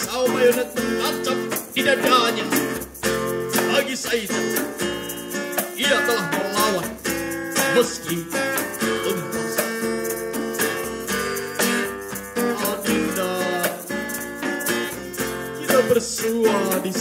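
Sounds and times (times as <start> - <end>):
acoustic guitar strumming: 0.0 - 17.0
djembe hand drumming: 0.0 - 17.0.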